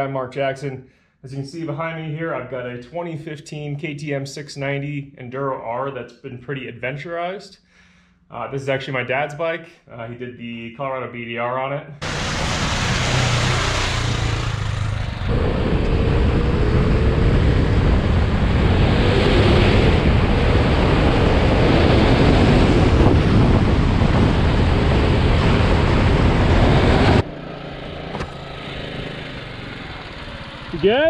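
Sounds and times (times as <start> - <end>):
motorcycle engine running: 12.0 - 31.0
wind buffeting microphone: 14.2 - 27.2.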